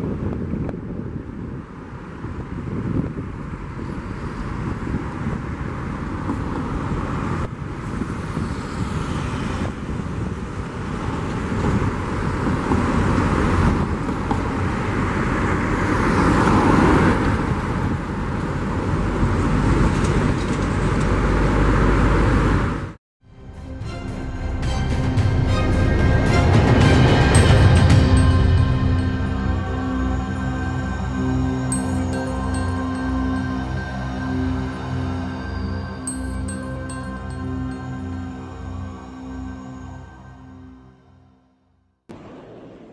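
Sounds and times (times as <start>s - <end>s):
music: 23.2s - 41.3s
jet engine rumble: 42.1s - 42.9s.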